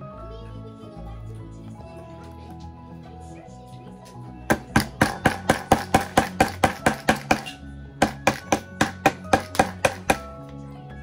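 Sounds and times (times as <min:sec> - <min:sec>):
background music: 0:00.0 - 0:11.0
hammer driving nails: 0:04.5 - 0:10.3.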